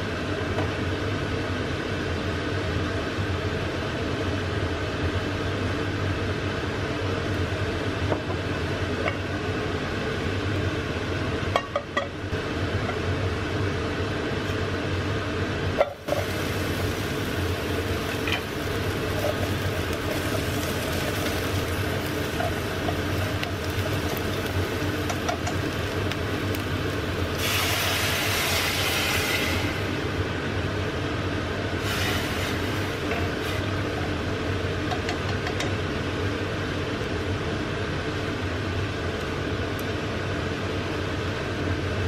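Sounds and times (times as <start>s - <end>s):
onions frying in oil: 0.0s - 37.1s
water hissing on hot pan: 15.9s - 30.2s, 31.8s - 34.0s.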